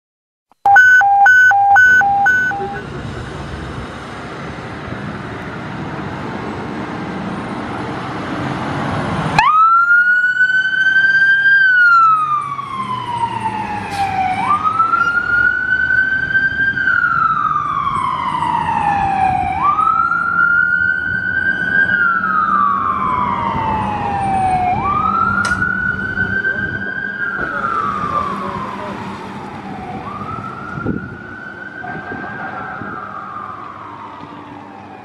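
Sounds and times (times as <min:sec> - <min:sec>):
road noise: 0:00.5 - 0:35.0
electronic siren wailing: 0:00.7 - 0:02.8
truck engine rumbling: 0:00.7 - 0:09.6, 0:11.0 - 0:34.8.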